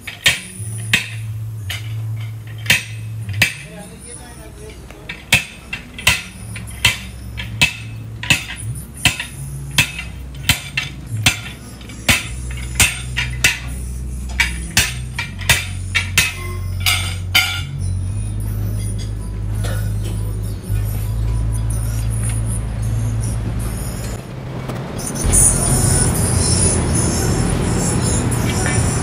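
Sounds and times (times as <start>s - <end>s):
sledgehammer striking metal lever: 0.0s - 3.9s, 4.8s - 17.8s
low hum: 0.0s - 29.0s.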